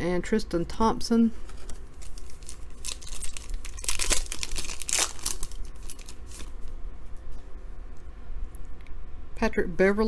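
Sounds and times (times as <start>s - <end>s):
foil wrapper tearing and crinkling: 2.0s - 6.6s.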